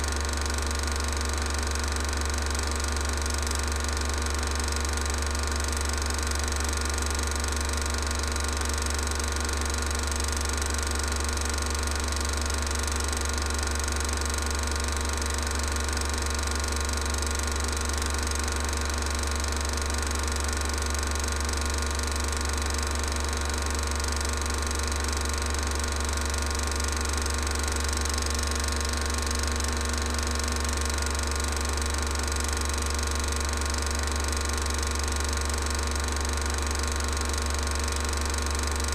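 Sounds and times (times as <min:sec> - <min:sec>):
film projector running: 0:00.0 - 0:38.9.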